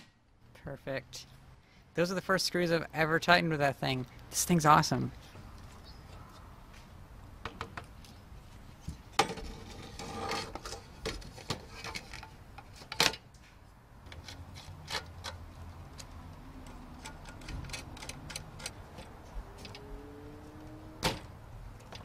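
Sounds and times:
metal parts clicking and knocking: 16.0 - 19.8.

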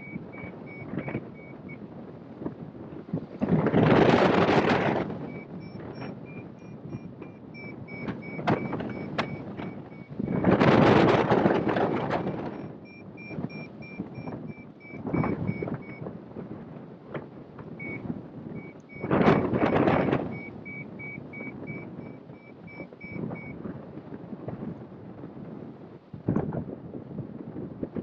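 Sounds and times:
variometer short high beeps: 0.0 - 1.8, 4.5 - 16.0, 17.8 - 23.6
wind rushing over microphone: 0.0 - 28.0.

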